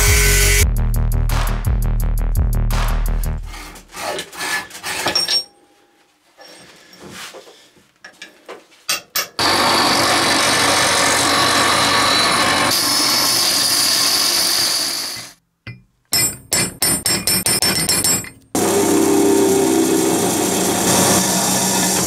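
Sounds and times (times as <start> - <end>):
electric saw cutting steel: 9.4 - 15.4, 18.6 - 22.0.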